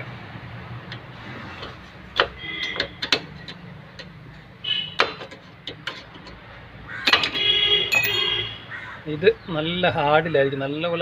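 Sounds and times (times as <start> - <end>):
metallic spring rings: 7.9 - 8.5.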